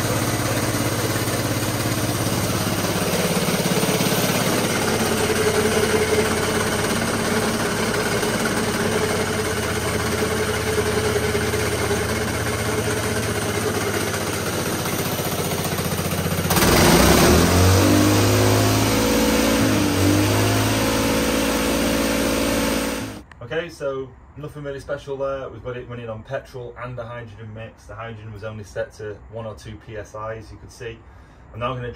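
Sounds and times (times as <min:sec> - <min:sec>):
small engine idling and revving: 0:00.0 - 0:23.3.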